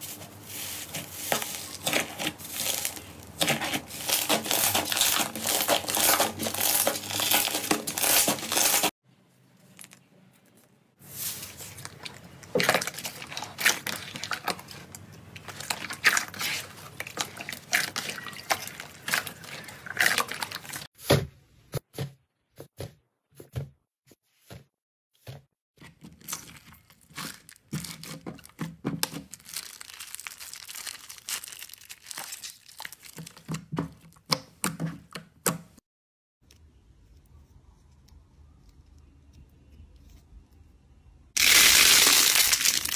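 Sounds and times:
slime crackling and squelching: 0.0s - 9.0s, 11.0s - 20.9s, 25.9s - 34.3s, 41.4s - 42.9s.

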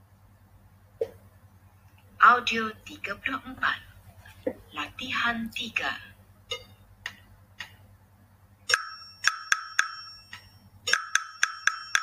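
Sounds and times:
wood block hits: 8.7s - 12.0s.

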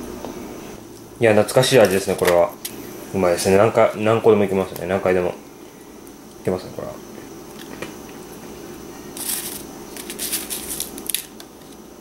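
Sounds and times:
plastic spoon scraping candy: 9.2s - 11.8s.

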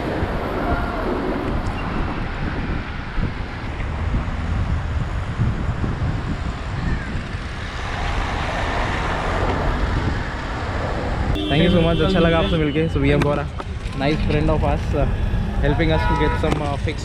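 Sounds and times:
wind rumble on microphone: 0.0s - 11.4s
cars passing on road: 0.0s - 17.0s.

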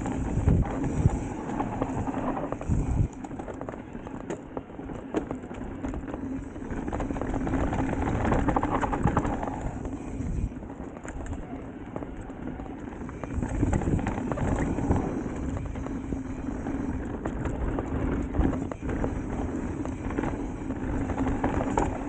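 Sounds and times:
wind buffeting microphone: 0.0s - 4.9s, 5.7s - 22.0s
bike and tyres rattling on rough ground: 0.0s - 22.0s.

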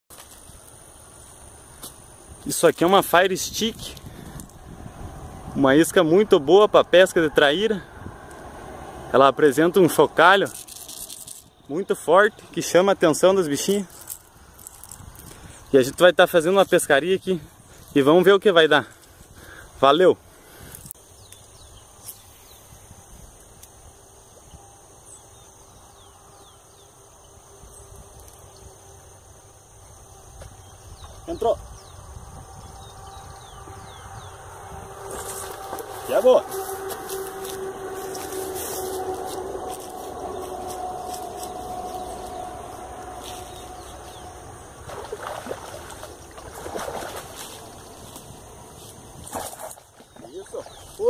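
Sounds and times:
high insect drone: 0.1s - 51.0s
wind rumble on microphone: 0.5s - 13.0s, 13.7s - 18.0s, 20.4s - 26.6s, 29.7s - 51.0s
steady hum: 31.6s - 49.2s
water noise: 33.6s - 51.0s.

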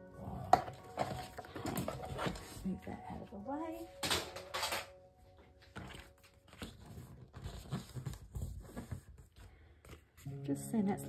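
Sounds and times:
paper rustling: 0.9s - 2.8s, 3.9s - 10.4s.

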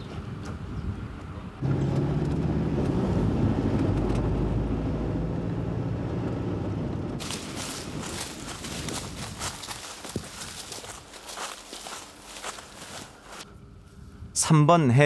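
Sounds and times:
van engine and road drone: 0.0s - 13.5s
footsteps in dry brush: 7.2s - 13.5s.

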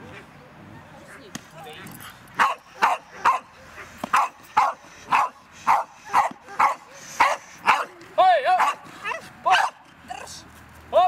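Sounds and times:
dog barking sharply: 2.4s - 3.5s, 4.1s - 7.9s, 8.6s - 9.8s.

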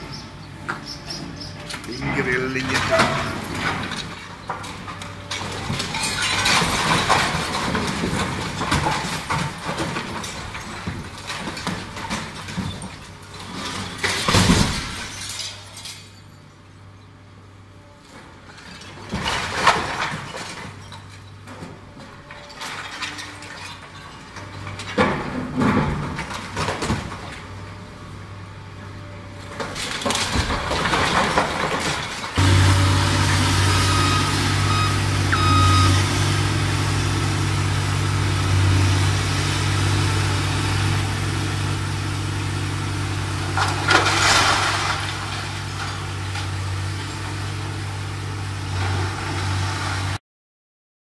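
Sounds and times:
excavator engine hum: 0.0s - 6.0s, 16.2s - 50.2s
rubble and tiles crashing down: 2.6s - 16.2s, 18.6s - 27.4s, 29.6s - 32.4s, 43.5s - 46.2s.

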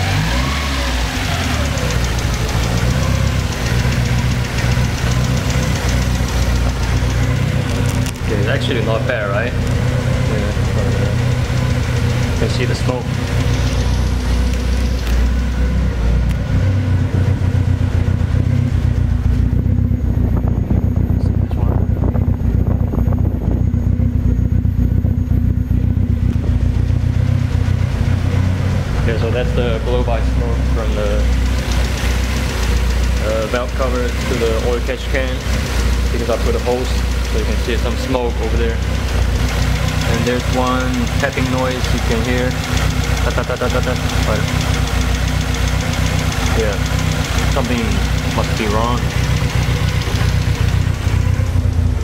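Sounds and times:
car engine idling: 0.0s - 52.0s
fast light engine ticking: 0.0s - 52.0s.

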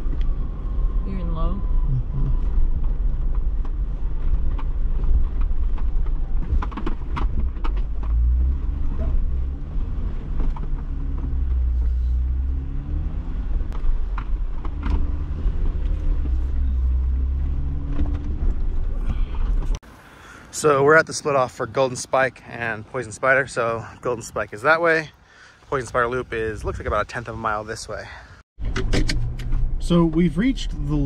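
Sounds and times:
engine drone: 0.0s - 5.0s
vehicle knocks and rattles: 2.6s - 11.7s.

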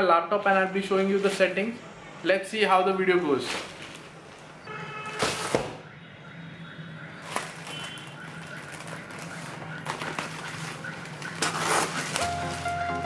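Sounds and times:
plastic mailer bag crinkling: 7.2s - 13.0s
scissors cutting plastic: 7.3s - 12.3s.

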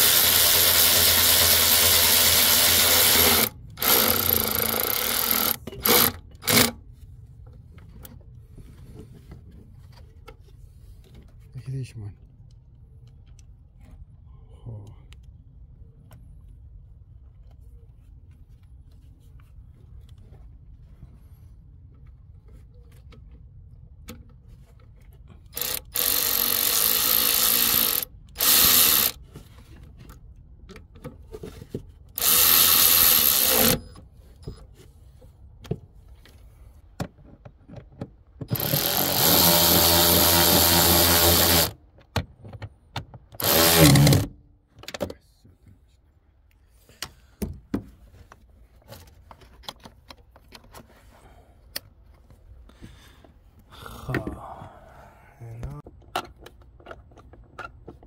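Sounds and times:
electric power tool running: 0.0s - 6.7s, 25.6s - 29.2s, 32.2s - 33.8s, 38.5s - 41.8s, 43.4s - 44.3s.

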